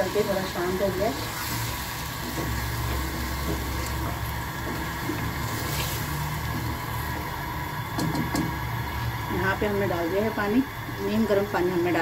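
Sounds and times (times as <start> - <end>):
wooden spoon stirring gravy: 0.2 - 7.6.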